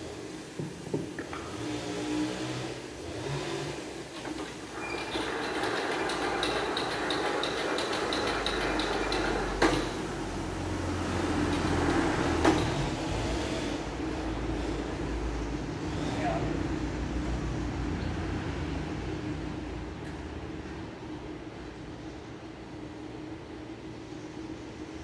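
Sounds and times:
band sawmill running: 1.3s - 14.8s.

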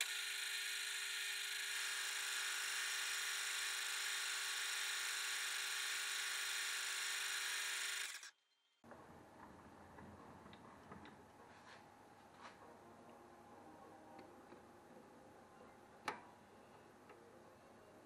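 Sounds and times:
high-pitched lathe whine: 0.0s - 8.3s.

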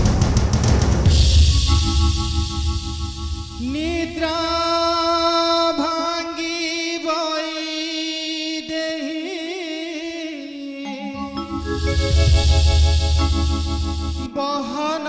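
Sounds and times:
steady drone: 1.1s - 5.4s, 11.2s - 14.4s
singer holding long note: 1.9s - 6.4s, 10.8s - 14.8s.

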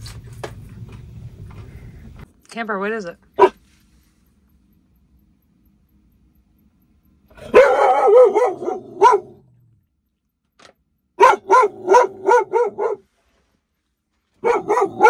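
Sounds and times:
dog barking: 3.4s - 3.6s, 7.4s - 9.5s, 11.2s - 13.1s, 14.4s - 15.0s.

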